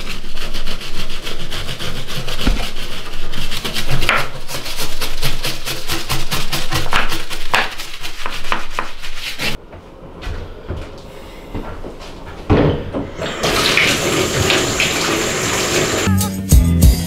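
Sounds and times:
scrubbing tile grout: 0.0s - 9.6s
water running into bath: 13.1s - 16.1s.

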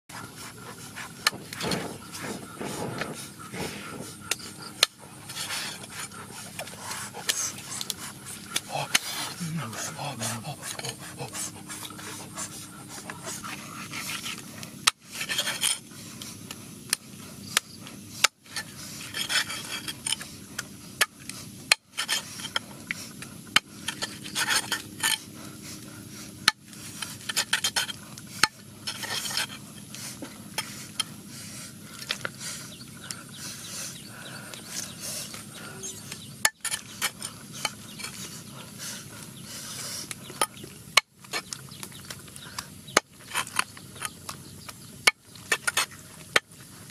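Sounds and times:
rubbing and handling noise: 0.1s - 21.0s.

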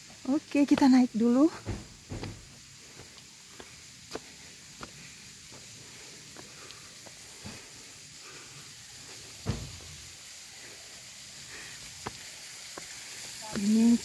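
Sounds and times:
steady high hiss: 0.0s - 14.0s
footsteps on stony path: 0.1s - 7.9s, 11.6s - 14.0s
low thump: 1.6s - 2.6s, 9.4s - 9.9s.

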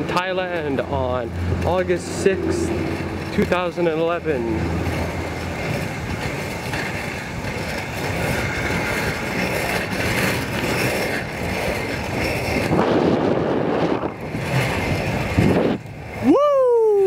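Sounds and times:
skate wheels rolling on asphalt: 0.0s - 17.0s.

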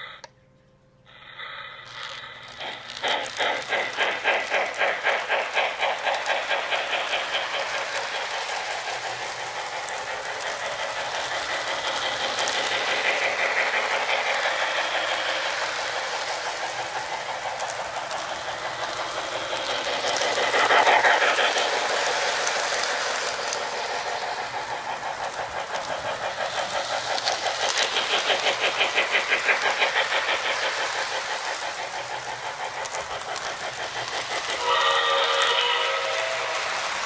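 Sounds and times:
toy train steam chuffing from speaker: 0.0s - 0.4s, 1.0s - 37.0s.

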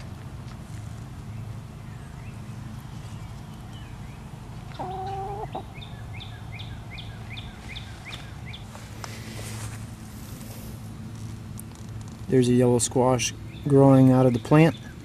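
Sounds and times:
small bird chirping: 1.3s - 8.7s
hen call: 4.8s - 5.7s.

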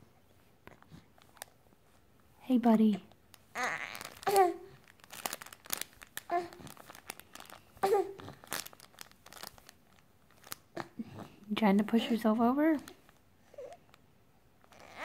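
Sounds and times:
toy crinkling and clicking: 3.3s - 7.7s, 8.4s - 10.6s
baby cooing and grunting: 3.5s - 4.8s, 6.3s - 6.8s, 7.8s - 8.5s, 10.7s - 11.4s, 14.7s - 15.0s.

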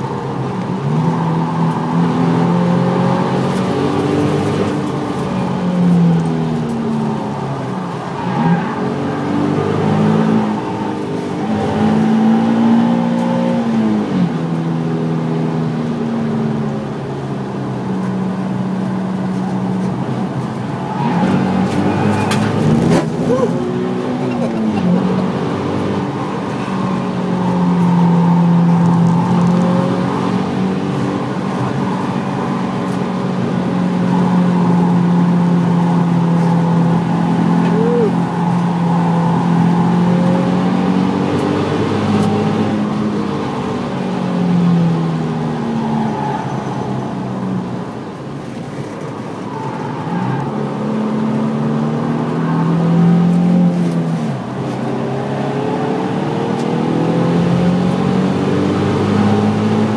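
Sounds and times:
car engine revving from inside cabin: 54.7s - 59.9s.

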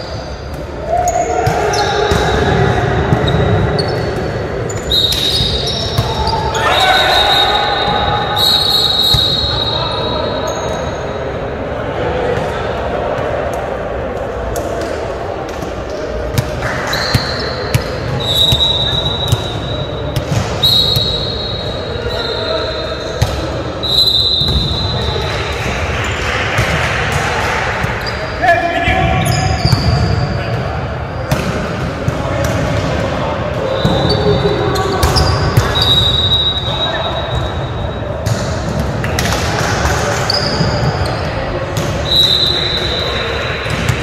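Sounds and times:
sneakers squeaking on gym floor: 3.1s - 11.2s, 15.9s - 25.2s, 27.9s - 28.4s, 29.1s - 31.6s, 33.6s - 39.3s, 40.2s - 44.0s.

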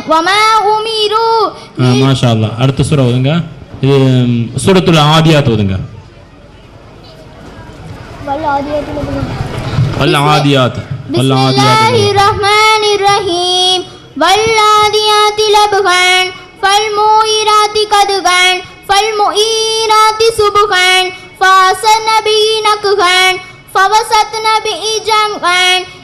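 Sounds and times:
girl chanting into a microphone: 11.1s - 26.0s.

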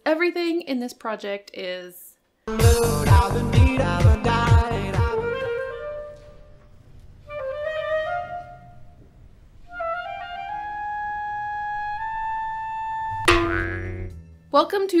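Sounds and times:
melodic intro music: 2.5s - 4.8s.

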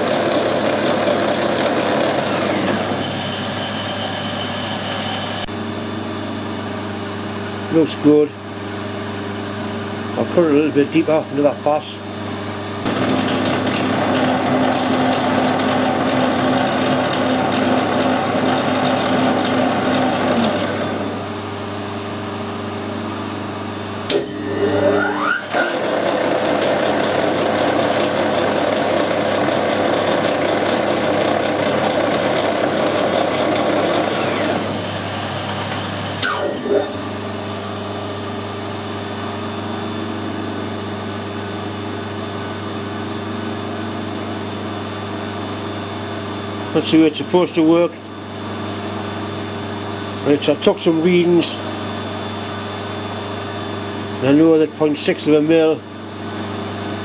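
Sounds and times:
metal lathe running: 0.0s - 57.0s
lathe click: 12.9s - 20.9s.

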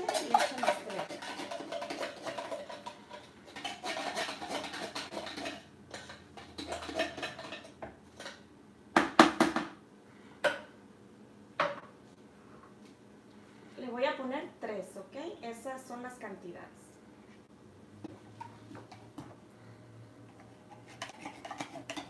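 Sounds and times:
metal spoon scraping in a can: 0.0s - 7.8s, 20.4s - 22.0s.

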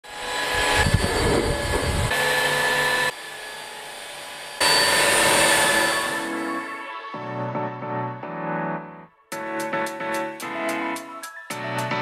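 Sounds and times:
vacuum suction with motor whine: 0.1s - 7.2s.

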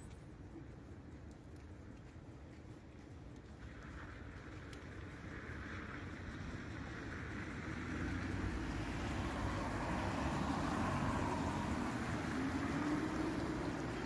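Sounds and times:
car approaching and passing: 3.6s - 14.0s.

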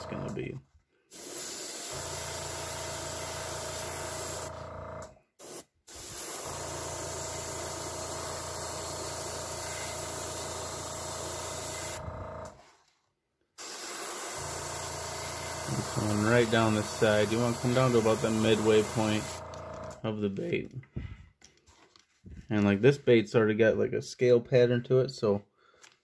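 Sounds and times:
airbrush spraying hiss: 1.1s - 4.5s, 5.4s - 12.0s, 13.6s - 19.4s.

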